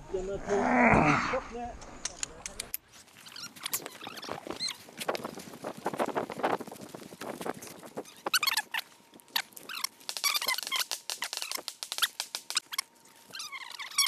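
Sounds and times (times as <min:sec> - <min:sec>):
footsteps on gravel: 0:02.8 - 0:11.6
high squeaks gliding down: 0:09.7 - 0:14.0.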